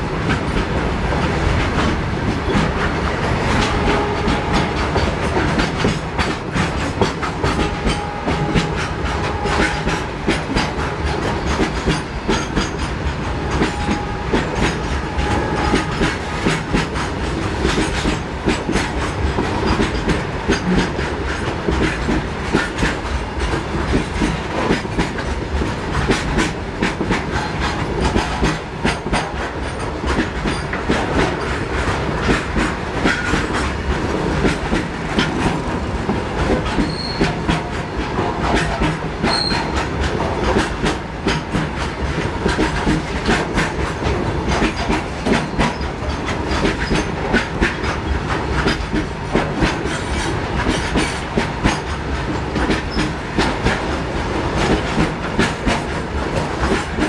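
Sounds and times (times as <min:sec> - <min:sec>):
train rumbling roar: 0:00.0 - 0:57.0.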